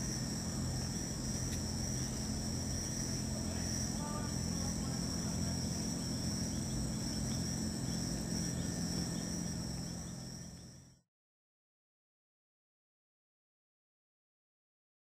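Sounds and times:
crickets chirping: 0.0s - 11.0s
low steady hum: 0.0s - 11.0s.

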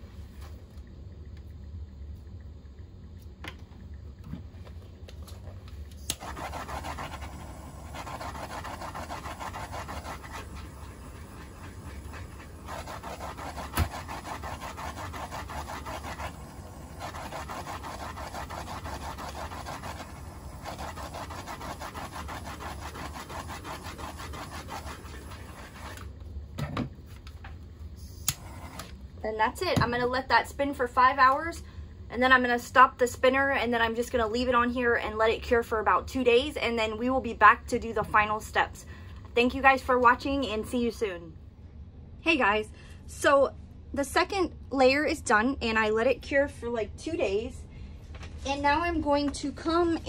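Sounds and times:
low steady hum: 0.0s - 50.0s
handheld torch hissing: 6.0s - 26.1s, 28.0s - 29.0s.

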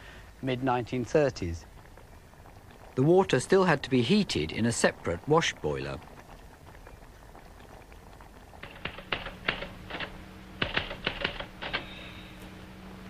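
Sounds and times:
low steady hum: 0.0s - 13.0s
typewriter keys clacking: 8.6s - 11.8s.

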